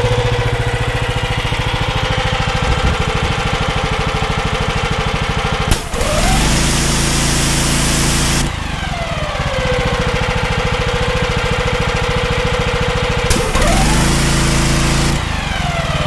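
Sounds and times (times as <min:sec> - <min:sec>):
pressure washer engine: 0:00.0 - 0:16.0
sharp click: 0:05.7 - 0:06.6, 0:13.3 - 0:14.4
high-pressure water jet hissing: 0:13.3 - 0:15.2.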